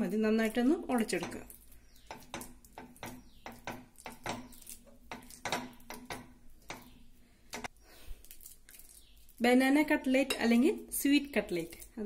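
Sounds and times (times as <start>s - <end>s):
fork mashing banana in a bowl: 0.4s - 7.7s.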